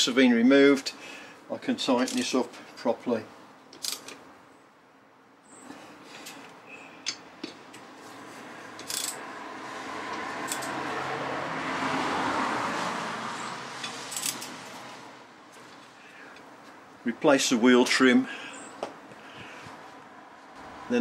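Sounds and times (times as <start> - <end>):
socket wrench clicking on wheel nuts: 3.8 - 4.2, 8.8 - 9.2, 13.8 - 14.5
broad rushing noise: 7.8 - 15.4.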